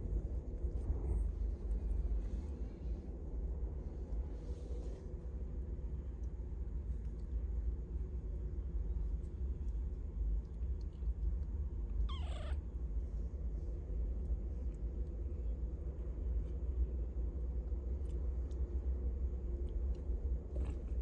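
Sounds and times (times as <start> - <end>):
steady low rumble: 0.0 - 21.0
kitten mewing: 12.0 - 12.6.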